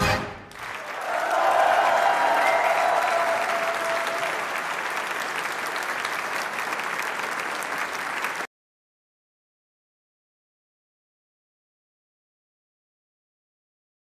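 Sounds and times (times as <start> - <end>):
audience applauding: 0.4 - 8.5.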